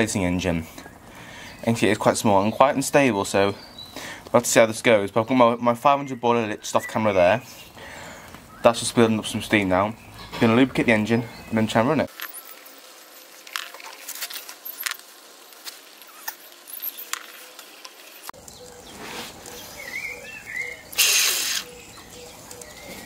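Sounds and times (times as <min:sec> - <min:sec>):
steam hissing: 0:14.6 - 0:21.8
faint bird chirps: 0:18.4 - 0:23.0.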